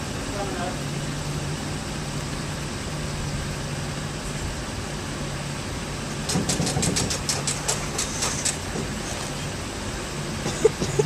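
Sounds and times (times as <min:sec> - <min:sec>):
hand winch ratchet clicking: 0:06.3 - 0:08.6.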